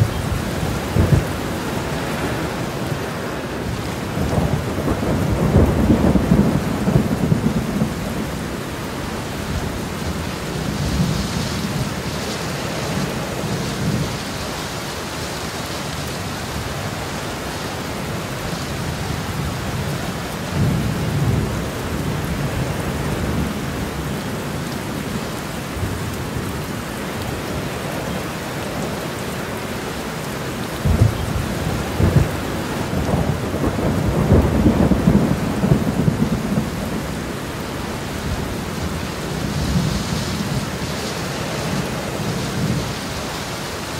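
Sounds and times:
thunder rumbling: 0:00.0 - 0:14.3, 0:30.7 - 0:43.8
steady rain: 0:00.0 - 0:43.9.

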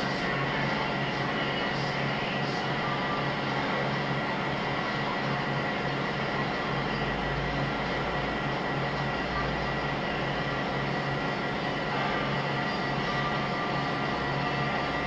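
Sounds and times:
treadmill motor whining: 0:00.0 - 0:15.0.

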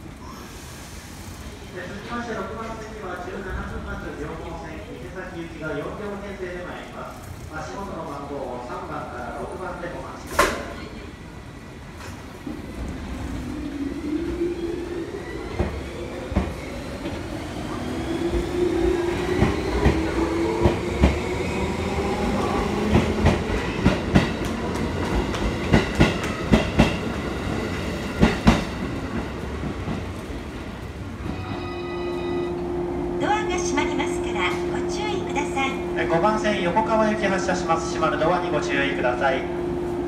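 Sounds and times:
electric train motors whining: 0:31.6 - 0:40.0.

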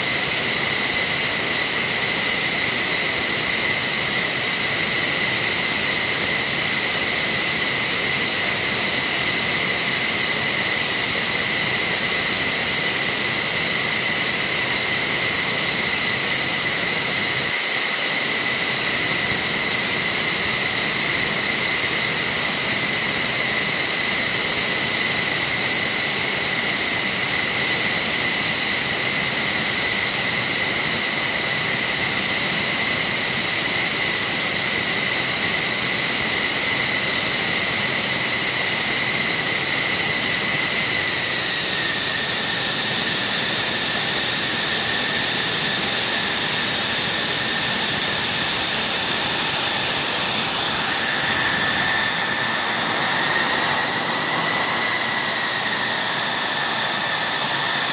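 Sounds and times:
jet engines running: 0:00.0 - 0:57.9.

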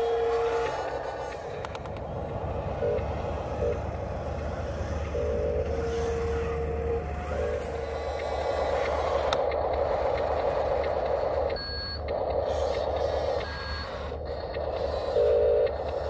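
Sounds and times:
short whining tones: 0:00.0 - 0:02.0
model loader motors humming: 0:00.0 - 0:16.0
clicks: 0:00.6 - 0:02.1.

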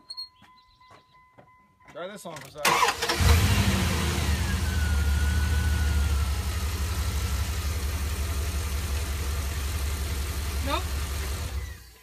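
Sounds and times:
truck engine idling: 0:02.7 - 0:12.0.

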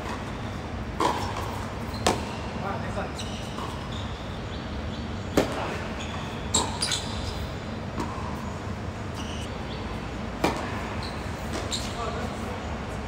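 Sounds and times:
tennis ball bouncing: 0:01.0 - 0:02.4, 0:05.3 - 0:05.8, 0:07.9 - 0:08.5, 0:10.4 - 0:11.8
tennis racket hitting ball: 0:10.4 - 0:10.8.

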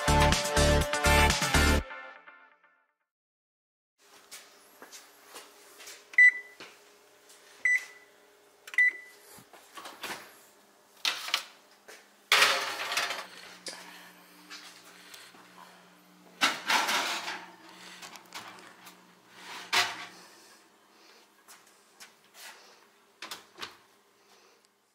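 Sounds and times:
control panel beeping: 0:08.7 - 0:09.1
oven racks clattering and scraping: 0:12.3 - 0:13.6, 0:16.4 - 0:20.2.

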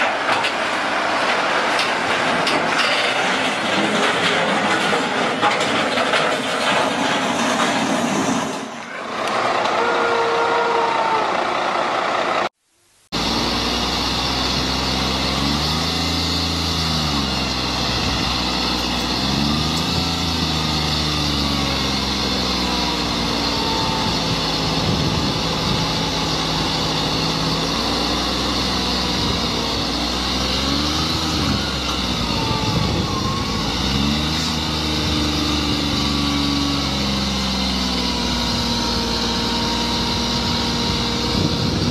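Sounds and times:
tractor diesel engine under load: 0:00.0 - 0:41.9
vehicle sound: 0:00.0 - 0:41.9.

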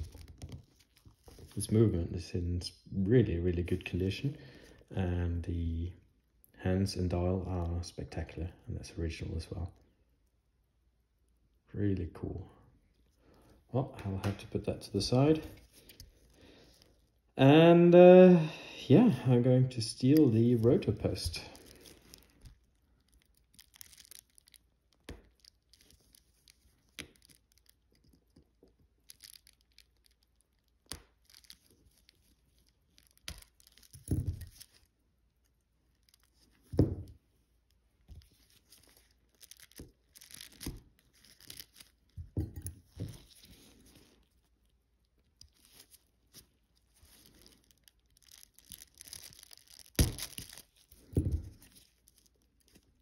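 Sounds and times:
small clicks and handling rustles: 0:00.0 - 0:01.8, 0:19.9 - 0:53.0.

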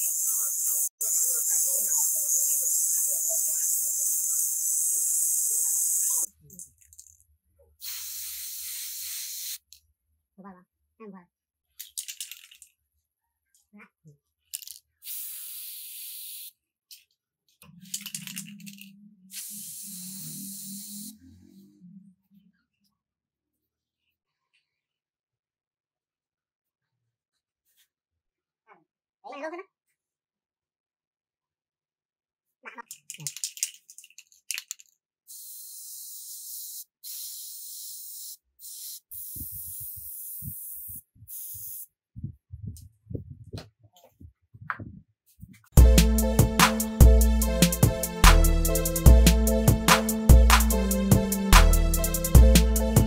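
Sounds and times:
spray paint hissing: 0:00.0 - 0:06.3, 0:07.8 - 0:09.7, 0:15.0 - 0:16.5, 0:18.0 - 0:21.2, 0:35.3 - 0:41.9
spray can rattle: 0:07.8 - 0:09.6, 0:11.8 - 0:12.7, 0:14.6 - 0:16.5, 0:17.8 - 0:20.6, 0:32.9 - 0:34.9, 0:38.6 - 0:41.8.

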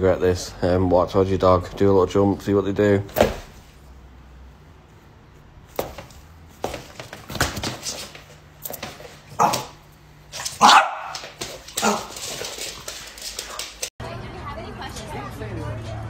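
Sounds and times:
thumps of person hopping: 0:05.7 - 0:09.8
puppy scrambling across wooden floor: 0:05.8 - 0:13.9
puppy barking: 0:10.4 - 0:12.2.

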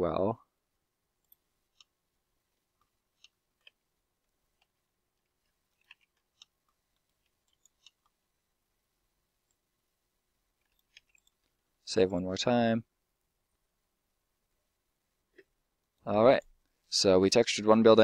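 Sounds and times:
mouse and keyboard clicks: 0:05.8 - 0:08.2, 0:10.6 - 0:11.4.

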